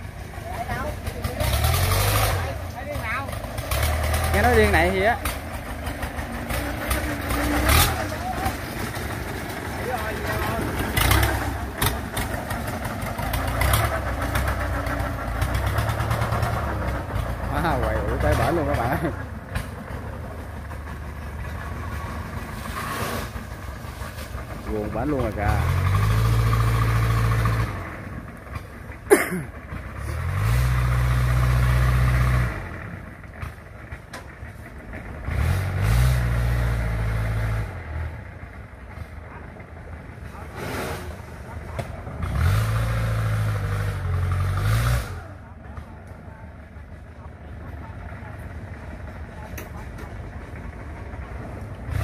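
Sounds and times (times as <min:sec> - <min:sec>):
boat engine running: 0:00.0 - 0:22.6
diesel engine revving: 0:00.0 - 0:52.0.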